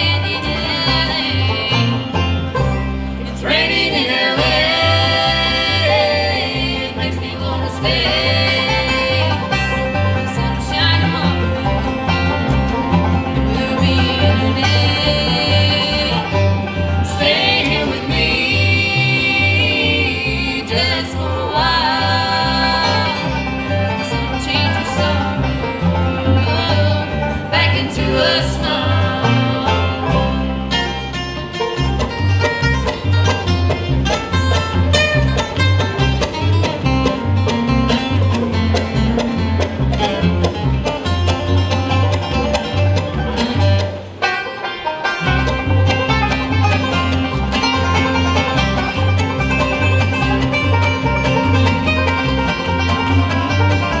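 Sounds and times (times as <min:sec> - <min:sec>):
woman singing: 0:00.0 - 0:02.1, 0:03.3 - 0:09.5, 0:10.2 - 0:11.6, 0:13.6 - 0:16.4, 0:17.0 - 0:25.5, 0:26.1 - 0:30.3
acoustic guitar: 0:00.0 - 0:54.0
banjo: 0:00.0 - 0:54.0
mandolin: 0:00.0 - 0:54.0
upright bass: 0:00.0 - 0:54.0.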